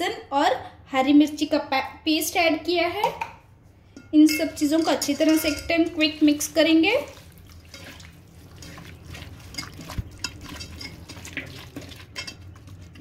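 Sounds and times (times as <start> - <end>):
wet squelches of meat by hand: 7.1 - 10.6.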